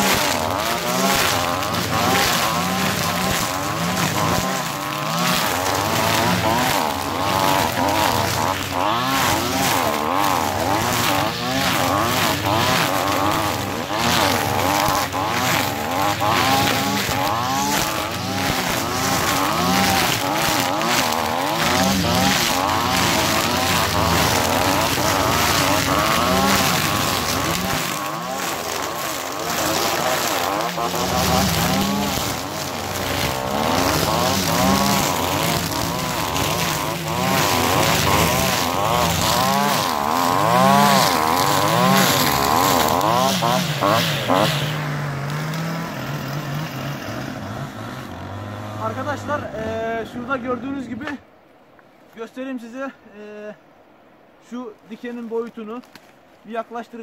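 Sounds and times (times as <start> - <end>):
brush cutters cutting scrub: 0.0 - 51.3, 54.9 - 56.3.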